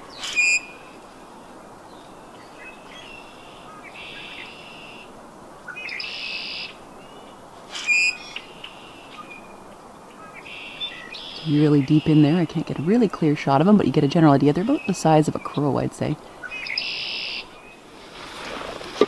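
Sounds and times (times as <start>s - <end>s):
bird trills: 0.1s - 0.9s, 5.7s - 9.5s, 16.4s - 17.8s
sharp bird calls: 0.1s - 1.0s, 2.4s - 5.1s, 5.7s - 12.4s, 16.3s - 17.8s.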